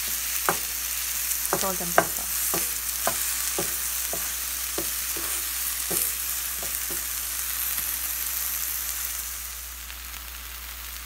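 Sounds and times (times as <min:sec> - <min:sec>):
spatula scraping a pan: 0:00.0 - 0:07.2
vegetables sizzling in a frying pan: 0:00.0 - 0:11.0.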